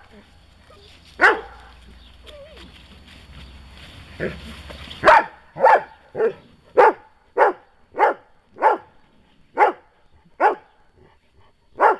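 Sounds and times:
dog barking: 1.2 - 1.8, 5.0 - 9.0, 9.6 - 10.7.

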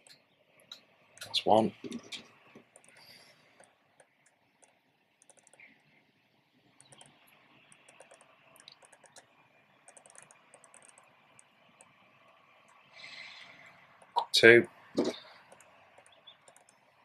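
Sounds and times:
fingers clicking and tapping metal: 4.0 - 5.6, 9.9 - 11.0.

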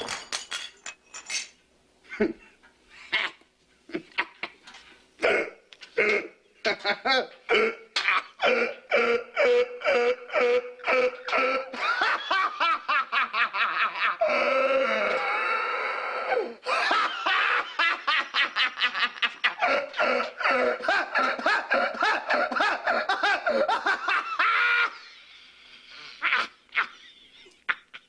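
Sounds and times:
man laughing hysterically: 3.1 - 4.6, 6.6 - 7.4, 8.0 - 15.4, 16.6 - 25.2, 26.1 - 28.0.

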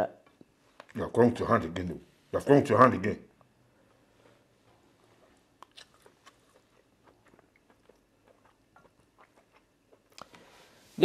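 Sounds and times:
people chewing food: 3.4 - 10.8.

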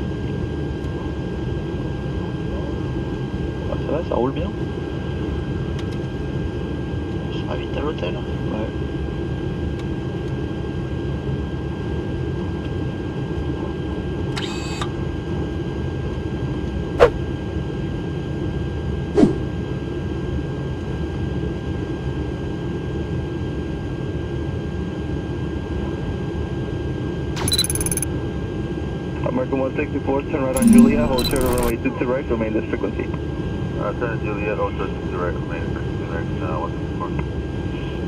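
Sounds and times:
sharp clicks: 27.4 - 28.0, 30.6 - 31.7.

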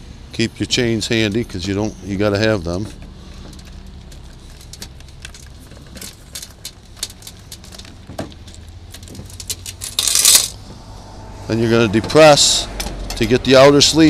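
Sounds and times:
metal chains clicking and rattling: 3.6 - 10.6
low hum: 9.7 - 13.4.

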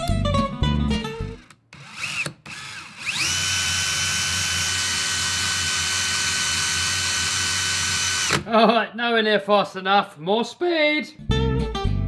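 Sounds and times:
drill spinning toy engine whirring: 1.2 - 8.4.

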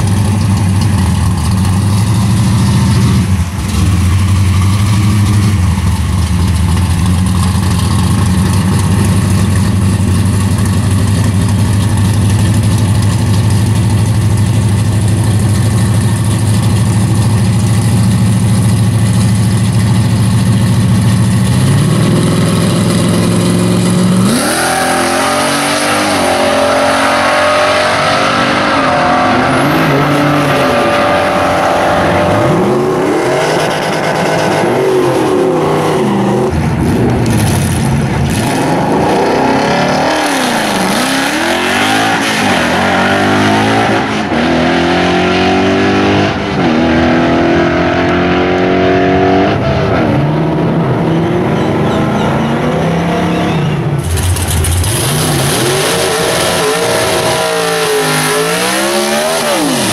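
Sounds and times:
drag car engine idling: 0.0 - 24.2, 53.9 - 55.2
drag car accelerating: 0.0 - 59.9.

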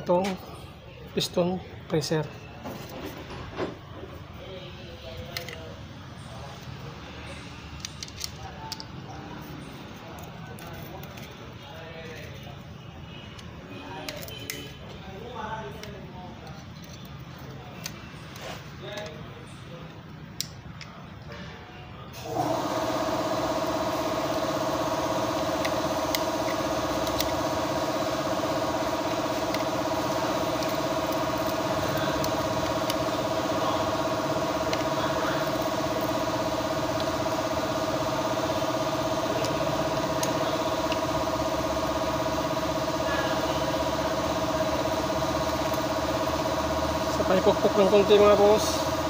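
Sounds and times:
motor running with whine: 22.2 - 49.0.

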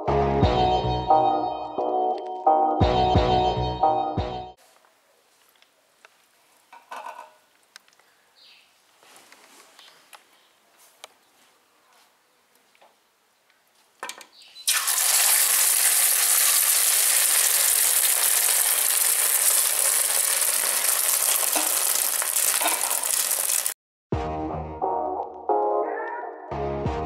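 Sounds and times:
eggs sizzling in hot oil: 14.7 - 23.8.

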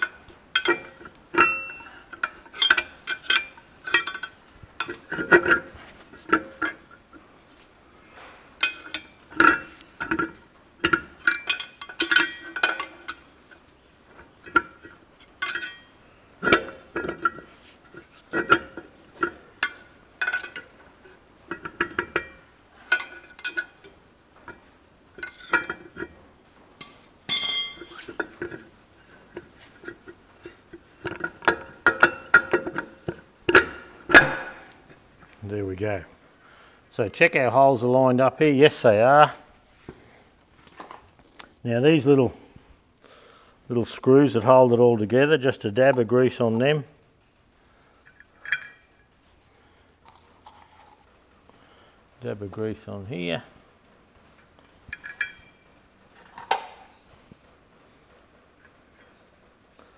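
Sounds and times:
metallic clinks and knocks: 0.0 - 35.4, 48.0 - 49.1, 54.8 - 57.0.

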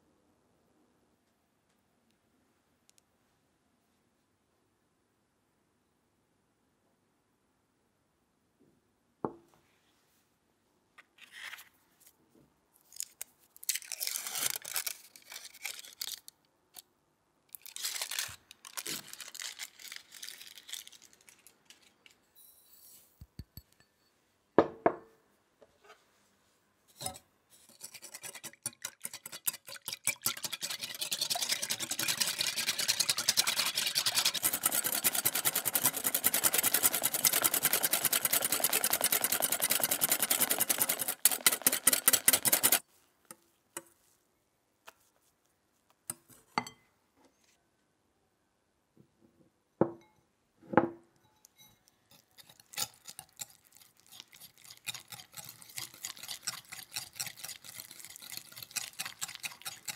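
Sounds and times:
whisk beating cream in glass bowl: 27.6 - 42.8, 52.1 - 59.9
light whisk ticking: 28.0 - 42.8, 51.4 - 59.9.

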